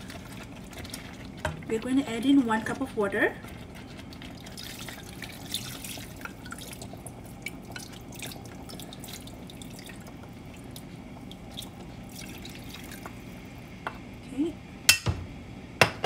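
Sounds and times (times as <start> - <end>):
spatula scraping bowl: 0.0 - 5.6.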